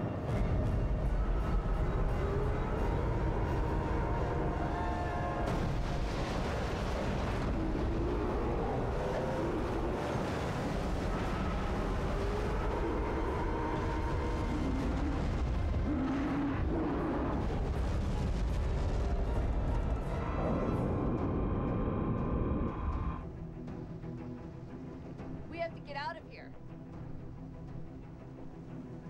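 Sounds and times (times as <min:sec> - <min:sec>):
heavy rumble: 0:00.1 - 0:23.2
churning crashing water: 0:02.3 - 0:21.0.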